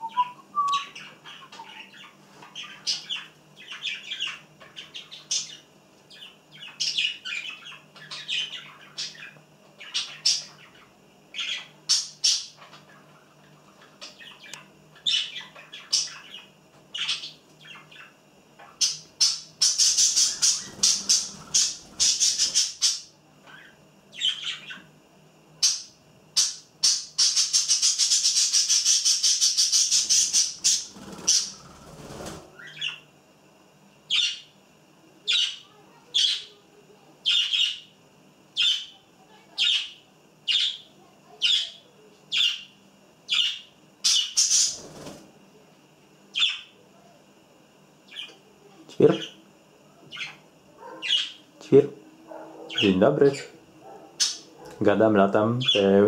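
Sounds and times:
budgerigars chirping and chattering: 0:00.0 - 0:24.9, 0:25.6 - 0:33.0, 0:34.1 - 0:34.5, 0:35.3 - 0:36.5, 0:37.2 - 0:37.9, 0:38.6 - 0:45.1, 0:46.4 - 0:46.7, 0:50.1 - 0:51.4, 0:52.7 - 0:53.5, 0:54.2 - 0:54.5, 0:55.6 - 0:56.0.

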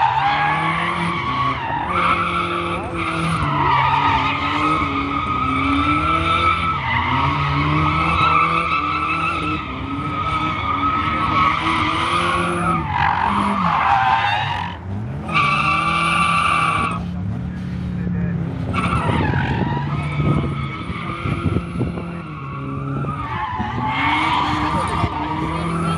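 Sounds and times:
car engine revving: 0:00.0 - 0:25.9
tyres squealing: 0:18.7 - 0:25.9.

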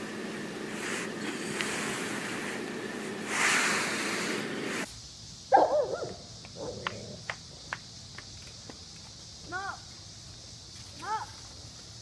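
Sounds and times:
dog barking and yelping: 0:05.5 - 0:07.2.

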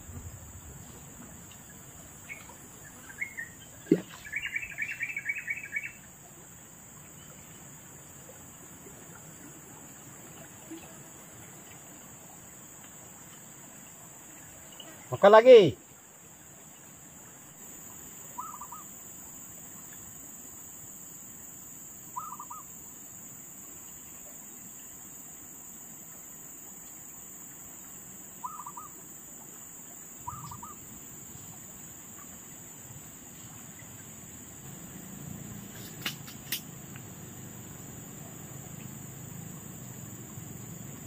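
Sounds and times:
insects droning: 0:00.0 - 0:41.0
bird calling: 0:01.6 - 0:06.1, 0:18.3 - 0:19.0, 0:22.1 - 0:22.7, 0:28.4 - 0:29.0, 0:30.2 - 0:30.9.

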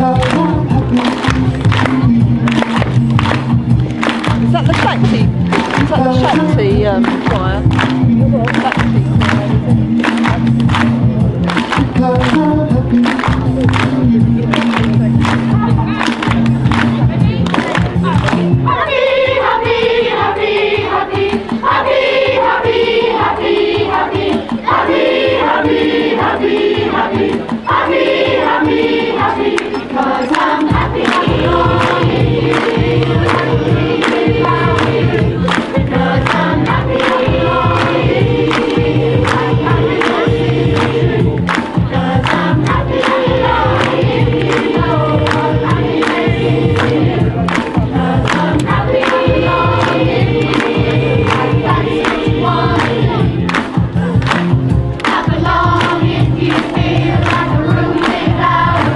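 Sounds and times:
strong bass line: 0:00.0 - 0:18.8, 0:30.7 - 0:58.9
amplified backing with beat: 0:00.0 - 0:58.9
choir singing: 0:18.6 - 0:53.5, 0:55.0 - 0:58.9.

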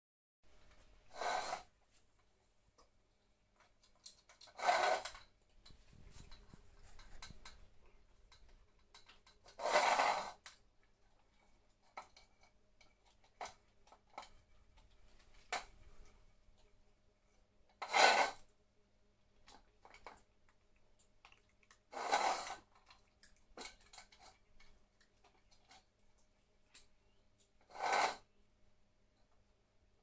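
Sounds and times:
cats eating from bowl: 0:03.1 - 0:17.0, 0:19.2 - 0:27.6.

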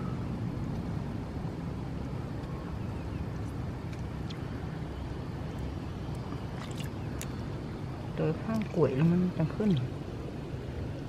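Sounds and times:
fingers squelching in wet mud: 0:06.2 - 0:07.4.

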